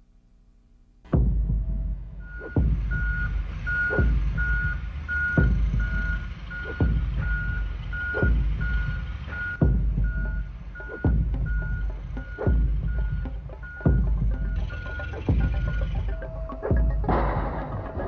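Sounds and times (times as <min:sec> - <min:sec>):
forklift reversing alarm beeping: 0:01.6 - 0:18.0
deep thud: 0:16.8 - 0:18.0.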